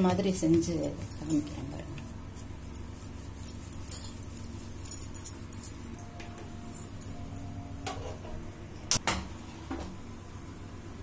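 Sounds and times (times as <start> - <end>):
low hum: 1.3 - 9.0
metal utensils clinking: 3.2 - 6.0.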